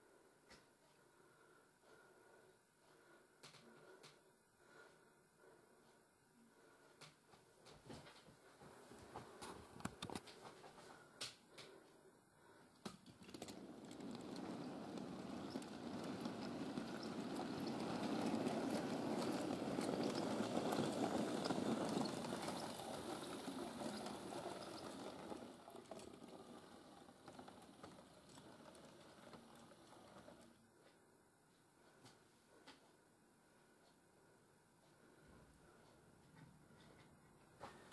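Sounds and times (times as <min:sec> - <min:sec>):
model train wheels clattering: 0:12.8 - 0:30.6.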